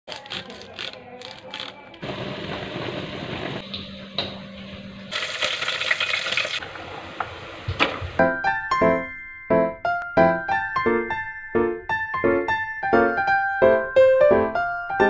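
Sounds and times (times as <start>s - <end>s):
piano music: 8.1s - 15.0s.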